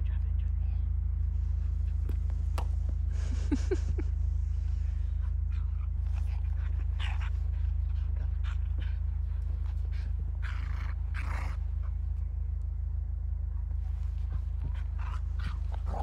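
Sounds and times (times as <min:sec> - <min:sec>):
low rumble: 0:00.0 - 0:16.0
dog panting: 0:01.7 - 0:12.2, 0:13.8 - 0:16.0.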